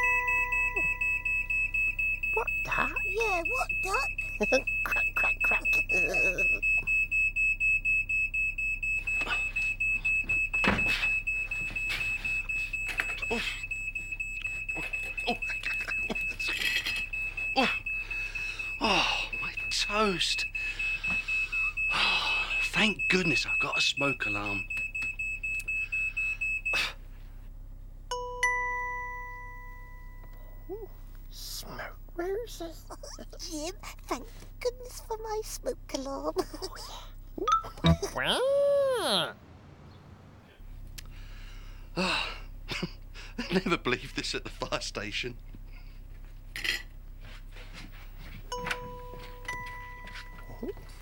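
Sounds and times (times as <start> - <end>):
struck chime notes: 0.0 - 6.5
smoke alarm beeping: 0.0 - 27.0, 48.5 - 51.0.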